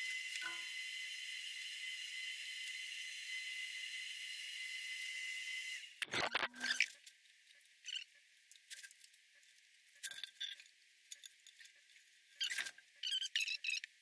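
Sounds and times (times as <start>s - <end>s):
high-pitched squeaks and clicks: 0.0s - 0.8s, 6.0s - 9.0s, 12.4s - 14.0s.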